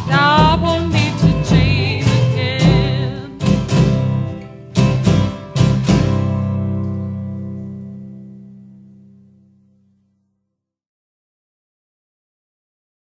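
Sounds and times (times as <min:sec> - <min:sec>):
woman singing with vibrato: 0:00.0 - 0:03.9
guitar strumming chords: 0:00.0 - 0:10.0.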